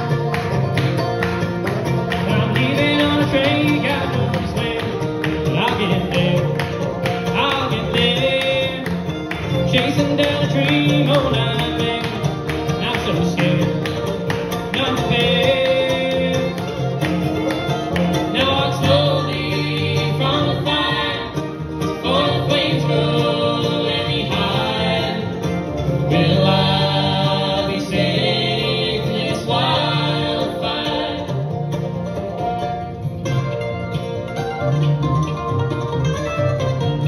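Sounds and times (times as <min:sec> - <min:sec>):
bluegrass band playing: 0:00.0 - 0:37.0
woman singing: 0:18.4 - 0:25.2.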